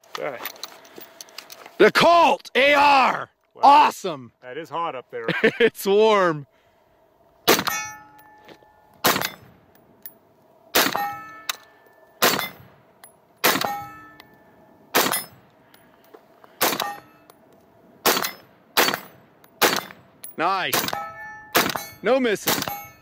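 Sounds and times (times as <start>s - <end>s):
rifle single shots: 7.5s - 7.8s, 9.0s - 9.5s, 10.7s - 11.3s, 12.2s - 12.6s, 13.4s - 14.0s, 14.9s - 15.4s, 16.6s - 17.1s, 18.0s - 20.1s, 20.7s - 22.8s
bullet ringing steel target: 7.5s - 9.6s, 10.7s - 12.8s, 13.4s - 15.4s, 16.6s - 17.4s, 18.0s - 23.0s.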